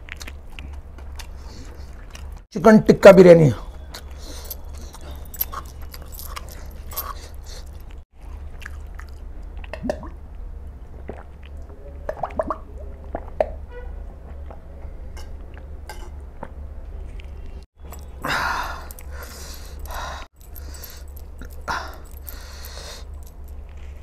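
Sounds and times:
man chewing food: 0.0 - 2.4, 3.7 - 11.8, 17.2 - 24.0.

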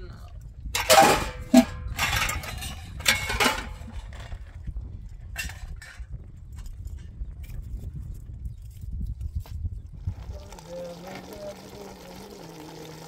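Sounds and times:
wind rumble on microphone: 0.0 - 11.5
dish clinking and scraping: 0.8 - 4.4, 5.4 - 6.0.

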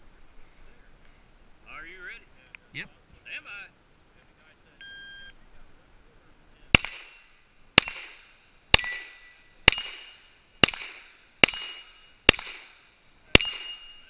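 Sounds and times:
pistol shots: 6.7 - 7.2, 7.8 - 14.0
steel target ringing: 6.7 - 14.0.

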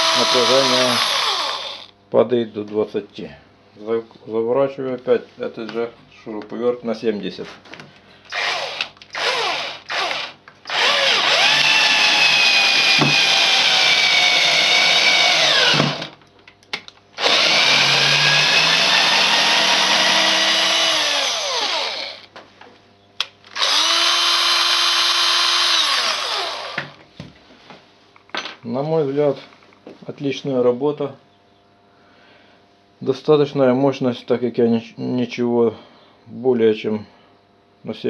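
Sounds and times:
cordless drill motor whine: 0.0 - 1.9, 8.3 - 16.2, 17.2 - 22.3, 23.5 - 27.0.

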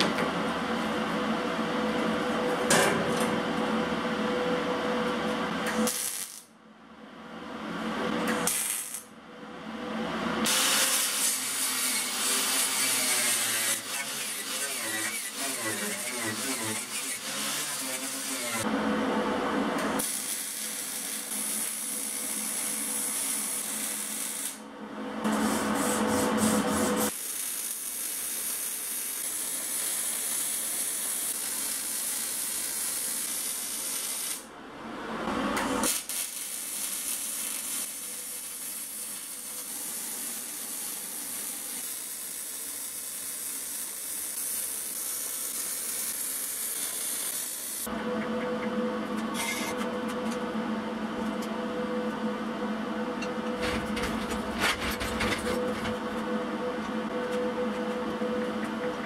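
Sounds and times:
welding arc hissing: 5.7 - 6.5, 8.4 - 9.1, 10.5 - 18.6, 20.0 - 24.6, 25.3 - 34.5, 35.8 - 47.9.

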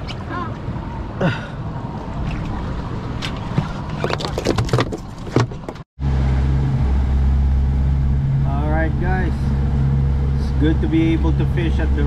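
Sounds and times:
water noise: 0.0 - 12.0
wind: 0.0 - 12.0
boat engine drone: 6.0 - 12.0.

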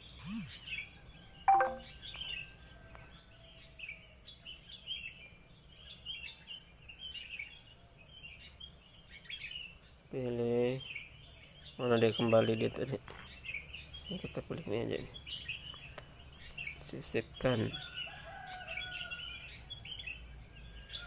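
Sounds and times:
birds chirping: 0.0 - 2.5, 8.3 - 20.2
sharp clink with ring: 1.5 - 1.9.

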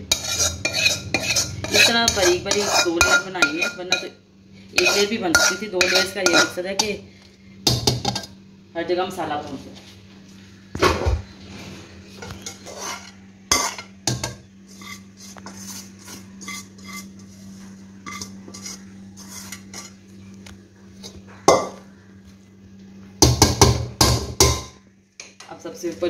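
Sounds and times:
spoon scraping metal pot: 0.0 - 4.1, 4.8 - 7.0, 12.2 - 20.0.

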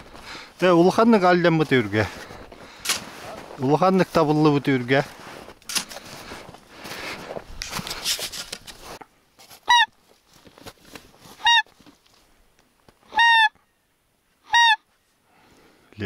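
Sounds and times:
rustling noise: 0.9 - 13.1
goose honks: 11.4 - 11.7, 13.1 - 13.6, 14.5 - 14.8.

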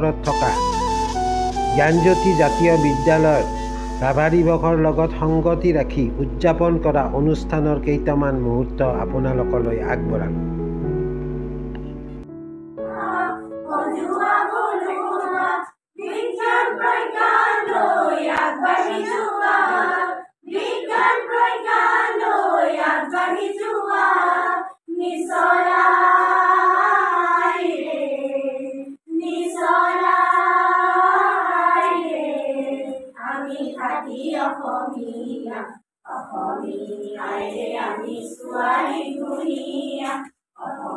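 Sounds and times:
women and girls singing in unison: 12.9 - 40.9.

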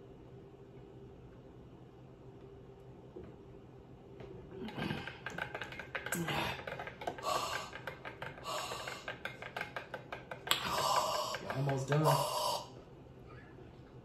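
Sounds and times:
drinking through a straw: 10.6 - 12.8.

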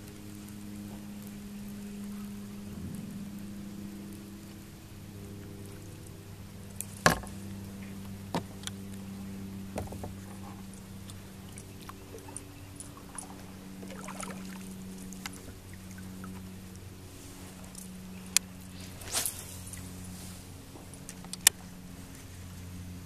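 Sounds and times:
steady low hum: 0.0 - 23.0
knocks and clicks on a kayak: 7.0 - 7.4, 8.3 - 8.7, 9.7 - 10.4.

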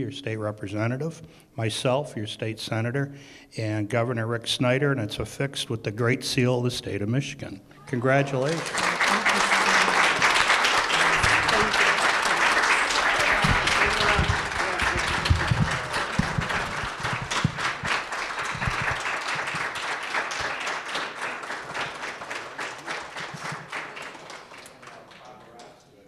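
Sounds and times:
audience applauding: 8.0 - 25.7.

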